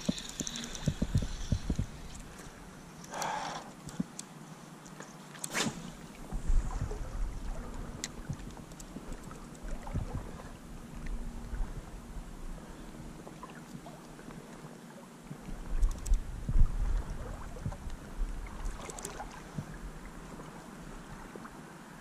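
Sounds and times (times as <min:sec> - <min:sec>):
wind rumble on microphone: 0:00.0 - 0:02.8, 0:06.0 - 0:13.2, 0:15.3 - 0:21.6
faint clicks: 0:00.0 - 0:05.5, 0:07.7 - 0:09.6, 0:15.8 - 0:16.2
river water sloshing: 0:17.0 - 0:22.0.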